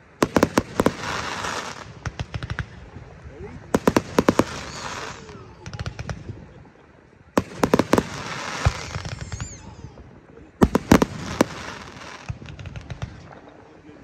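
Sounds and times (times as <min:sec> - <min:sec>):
fireworks bangs: 0:00.0 - 0:13.7.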